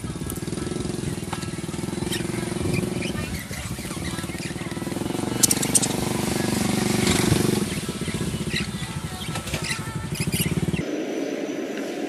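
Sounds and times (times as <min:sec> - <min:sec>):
engine running: 0:00.0 - 0:12.0
budgerigars chirping: 0:00.8 - 0:10.8.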